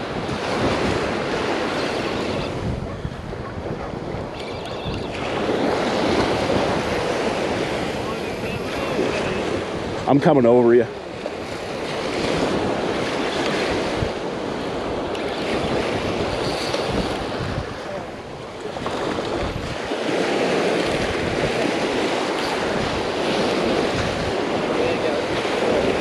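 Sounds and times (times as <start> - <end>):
surf breaking on beach: 0.0 - 26.0
wind buffeting microphone: 0.0 - 26.0.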